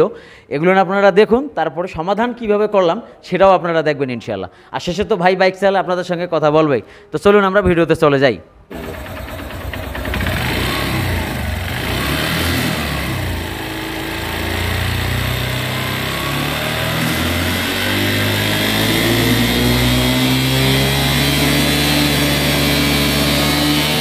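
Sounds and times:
motorcycle engine idling: 0:08.7 - 0:18.6.

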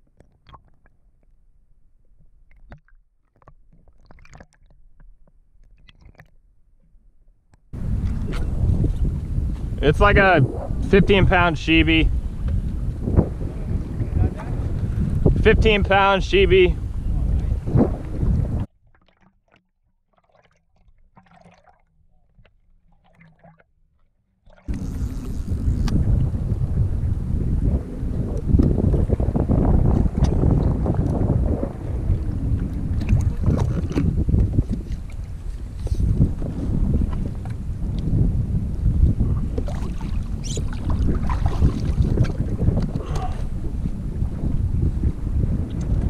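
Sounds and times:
soft underwater clicks and pops: 0:00.0 - 0:01.4, 0:02.0 - 0:08.5, 0:17.4 - 0:21.7, 0:30.2 - 0:31.2, 0:45.6 - 0:46.0
wind: 0:00.0 - 0:46.0
muffled underwater rumble: 0:07.8 - 0:15.5, 0:16.1 - 0:18.7, 0:24.6 - 0:46.0.

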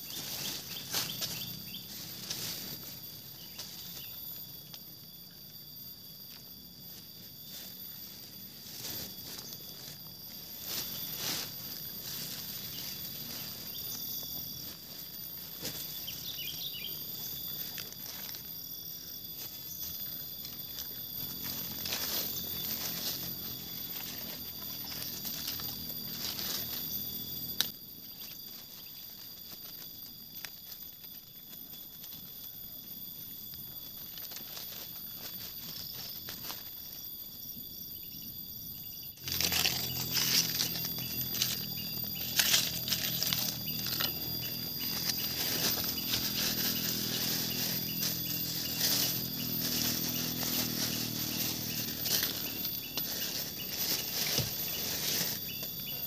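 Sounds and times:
rustling and crinkling: 0:00.0 - 0:04.1, 0:06.9 - 0:18.7, 0:39.2 - 0:56.0
high insect drone: 0:00.0 - 0:56.0.

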